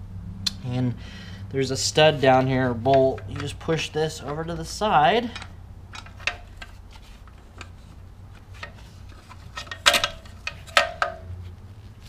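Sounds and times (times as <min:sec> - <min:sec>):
screwdriver clicking on metal parts: 0:02.1 - 0:07.8, 0:08.4 - 0:11.3.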